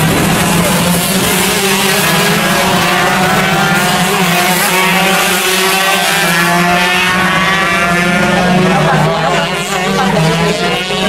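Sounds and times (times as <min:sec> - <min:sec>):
kart engines accelerating: 0:00.0 - 0:11.0.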